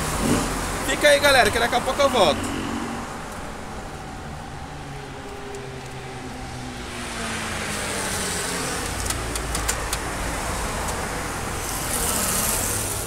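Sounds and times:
vehicles driving past: 0:00.0 - 0:13.0
sharp clicks: 0:08.8 - 0:10.1.

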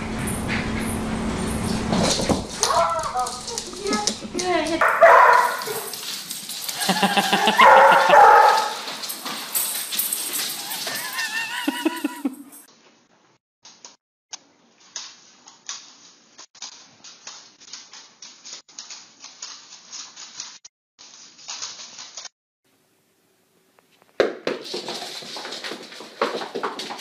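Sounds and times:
dog claws clicking on wood floor: 0:02.0 - 0:12.2, 0:24.0 - 0:27.0.

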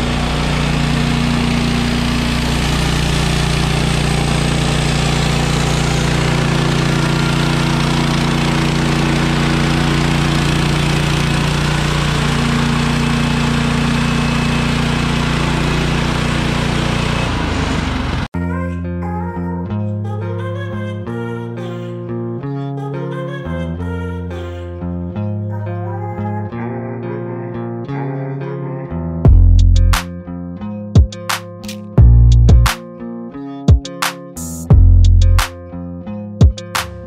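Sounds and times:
gas engine running: 0:00.0 - 0:18.3.

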